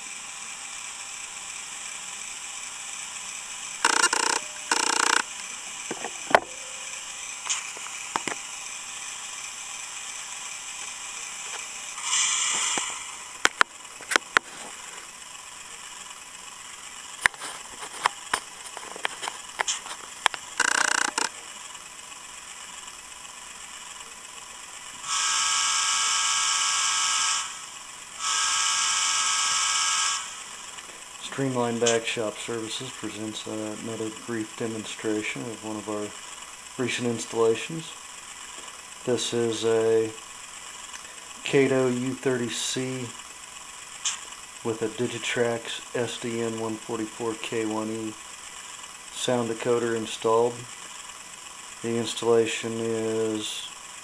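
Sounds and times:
diesel locomotive engine running: 0:00.0 - 0:51.8
mechanical ticking: 0:03.8 - 0:05.3, 0:19.6 - 0:21.4.

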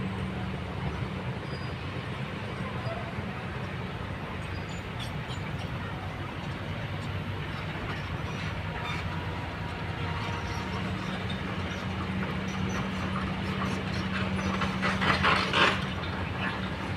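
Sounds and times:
excavator diesel engine running: 0:00.0 - 0:16.9.

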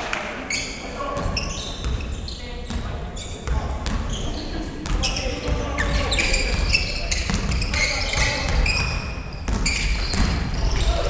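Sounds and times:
sneakers squeaking: 0:00.4 - 0:11.0
basketball bouncing on wooden floor: 0:04.8 - 0:10.9.

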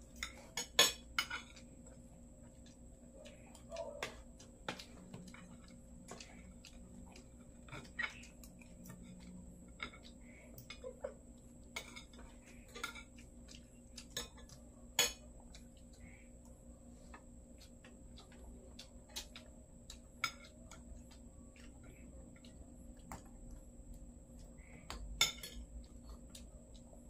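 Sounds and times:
cutlery clinking on ceramic plates: 0:00.2 - 0:01.6, 0:11.7 - 0:13.2, 0:14.0 - 0:15.3, 0:20.2 - 0:20.9, 0:25.2 - 0:25.7.

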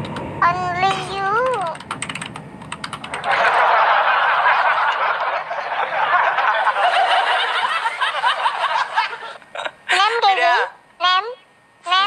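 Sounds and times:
crowd laughing: 0:03.1 - 0:10.3.

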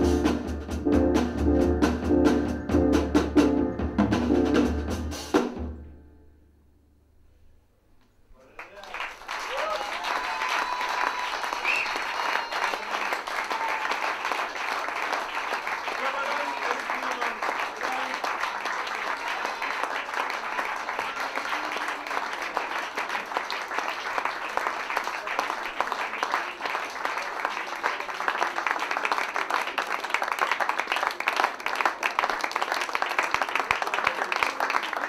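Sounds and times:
audience applauding: 0:08.4 - 0:35.0.

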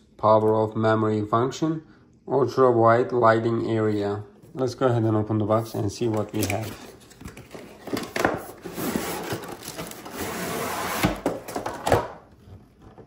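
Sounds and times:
plastic packaging rustling: 0:06.0 - 0:12.0.

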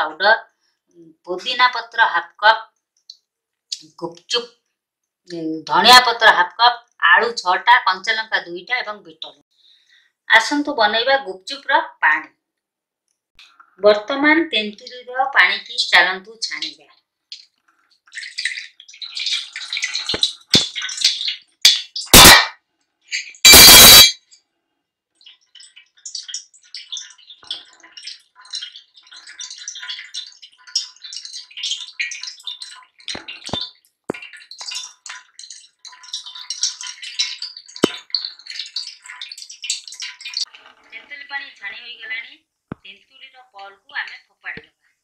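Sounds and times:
water poured through strainer: 0:18.1 - 0:21.4, 0:25.2 - 0:40.6.

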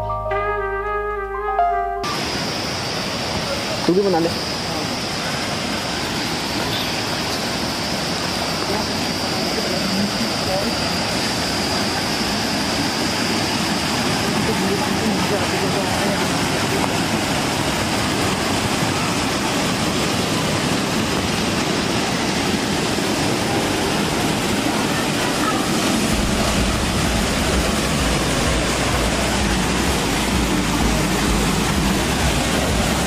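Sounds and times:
waterfall rushing: 0:02.0 - 0:33.0
low rumble: 0:25.9 - 0:33.0.

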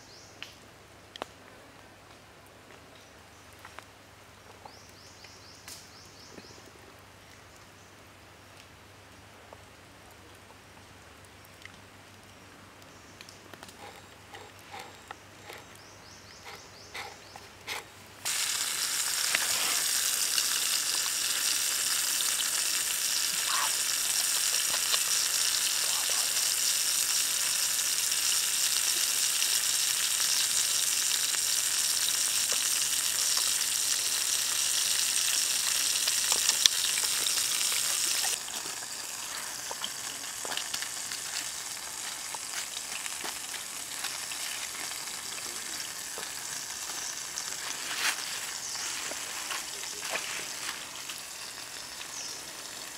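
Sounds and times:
chicken sizzling over embers: 0:13.2 - 0:52.9.

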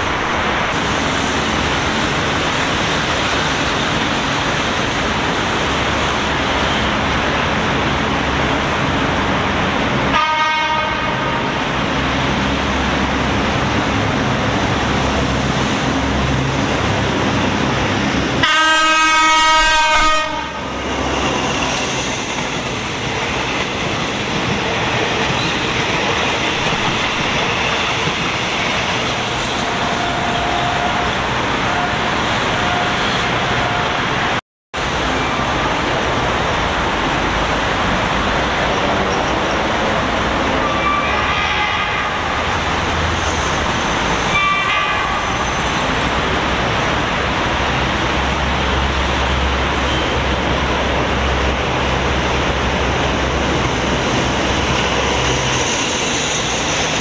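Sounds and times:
train rumbling on track: 0:00.0 - 0:57.0
train horn blasts: 0:10.1 - 0:11.6, 0:18.4 - 0:20.7, 0:40.6 - 0:42.3, 0:44.3 - 0:45.4.

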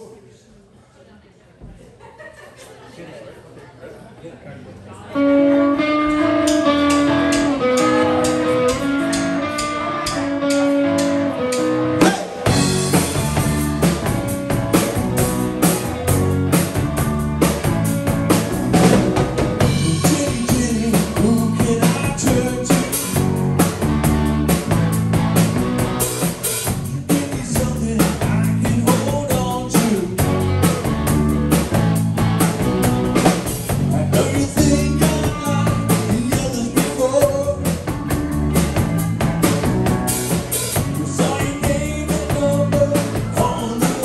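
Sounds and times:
bass guitar: 0:05.0 - 0:44.0
electric guitar riff: 0:05.2 - 0:44.0
rock band playing: 0:05.2 - 0:44.0
drums ticking: 0:06.0 - 0:44.0.

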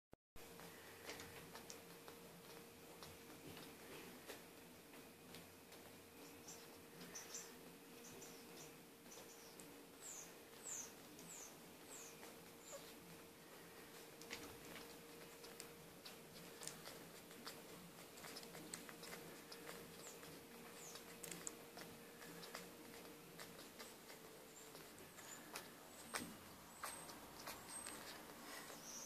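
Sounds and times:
puppies squeaking: 0:06.1 - 0:29.0.

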